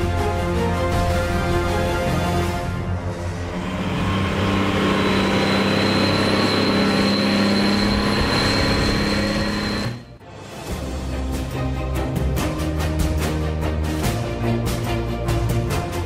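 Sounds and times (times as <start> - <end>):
tractor diesel engine running: 3.0 - 10.2
thin high whine: 3.5 - 10.2.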